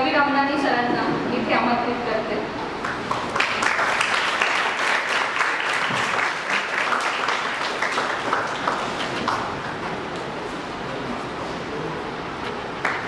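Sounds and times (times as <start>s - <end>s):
audience applauding: 2.8s - 10.2s, 12.8s - 13.0s.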